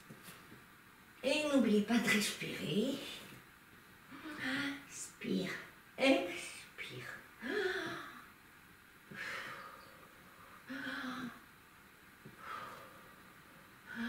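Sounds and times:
woman breathing audibly: 9.1s - 11.4s, 12.2s - 14.0s.

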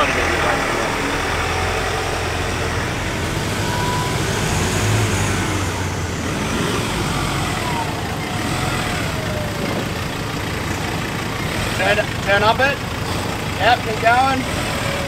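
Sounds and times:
faint falling tone: 0.0s - 6.0s
diesel engine running: 0.0s - 15.0s.

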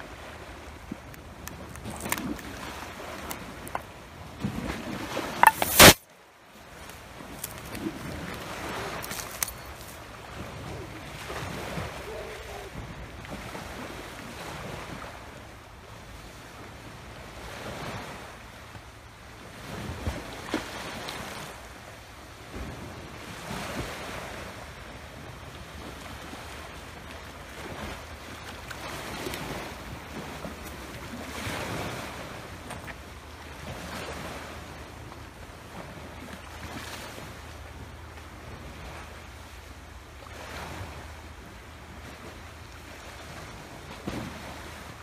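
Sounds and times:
waves washing on rocks: 0.1s - 6.0s.

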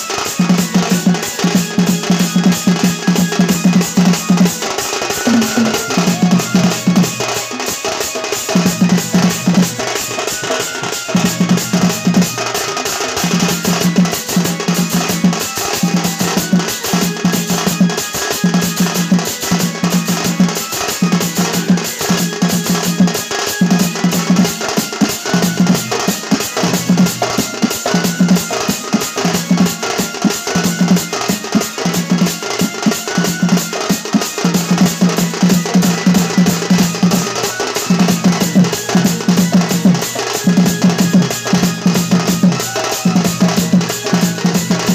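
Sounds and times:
fast stick drumming: 0.4s - 16.1s.

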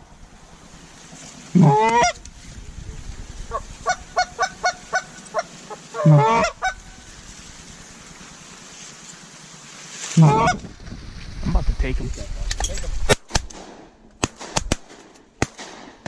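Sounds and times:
goose call honks: 1.5s - 2.2s, 3.5s - 7.0s, 10.1s - 10.7s
goose call short clucks: 1.6s - 2.2s, 3.8s - 6.8s, 10.2s - 10.6s.

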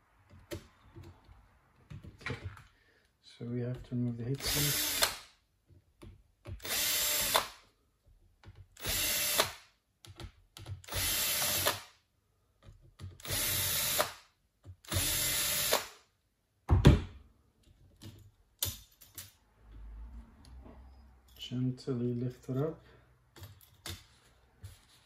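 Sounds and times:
cordless drill running: 4.4s - 5.1s, 6.6s - 7.5s, 8.8s - 9.6s, 10.9s - 11.8s, 13.2s - 14.0s, 14.9s - 15.9s.

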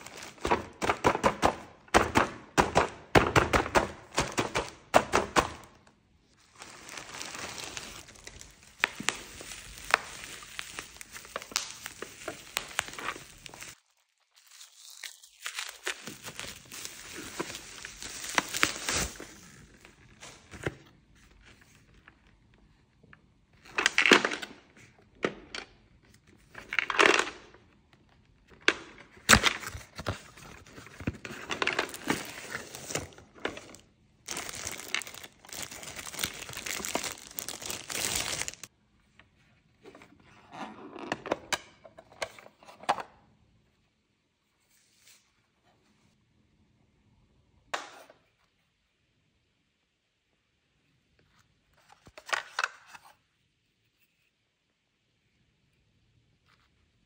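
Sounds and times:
bubble wrap tearing and crinkling: 0.0s - 0.5s, 6.4s - 20.4s, 29.3s - 38.7s.

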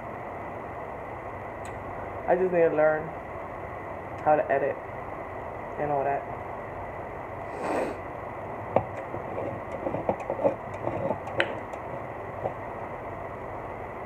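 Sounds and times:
short breath: 7.4s - 8.0s.

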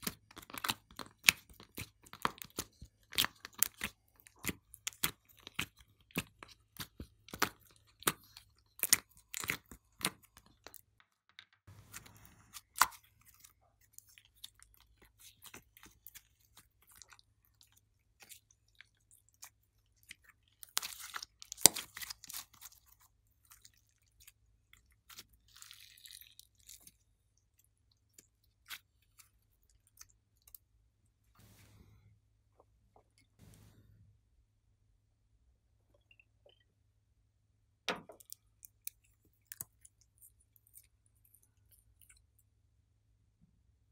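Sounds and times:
sticky slime pops and crackles: 20.6s - 22.6s.

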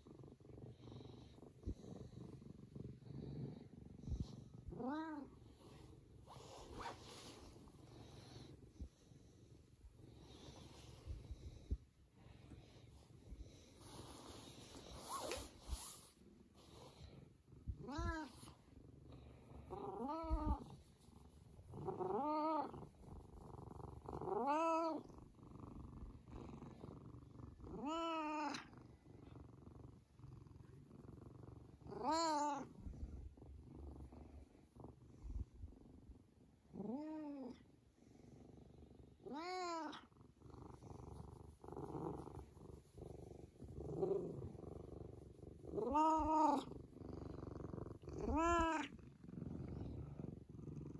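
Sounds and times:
cat purring: 0.0s - 50.9s
cat meowing: 48.2s - 48.9s.

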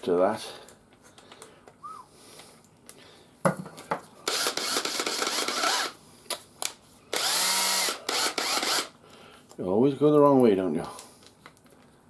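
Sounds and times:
drill with wire brush whirring: 4.2s - 6.0s, 7.1s - 9.0s.

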